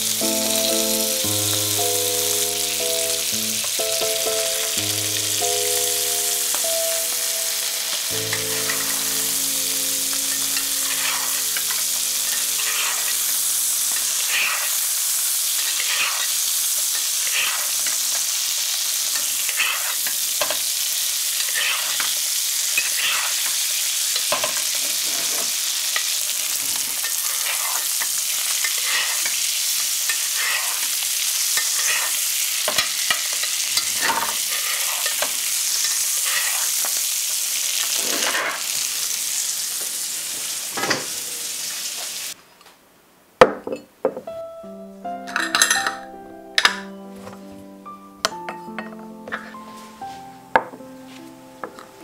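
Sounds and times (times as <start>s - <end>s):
music: 0.0s - 13.7s, 44.2s - 52.0s
fish sizzling in butter: 0.0s - 42.4s.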